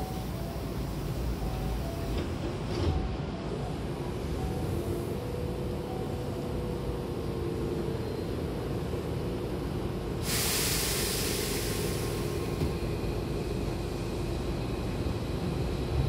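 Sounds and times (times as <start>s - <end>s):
train humming: 0.0s - 16.0s
compressed air hiss: 10.2s - 12.5s.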